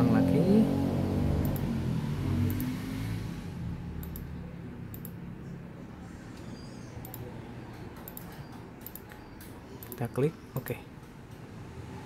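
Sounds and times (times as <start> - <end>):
computer mouse clicking: 2.5 - 2.7, 4.0 - 4.3, 4.9 - 5.2, 6.4 - 11.5.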